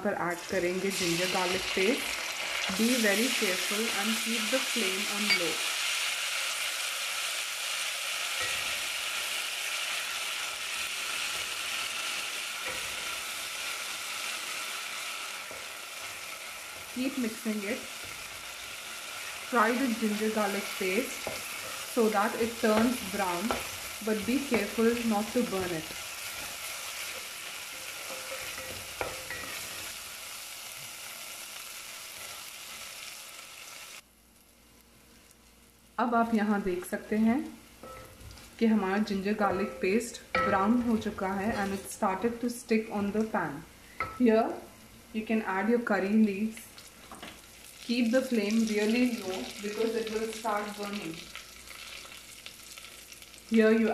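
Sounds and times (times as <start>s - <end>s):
onions sizzling in hot oil: 0.0s - 53.9s
wooden spoon stirring: 15.4s - 29.9s
wooden spoon knocking on pot: 22.7s - 25.9s.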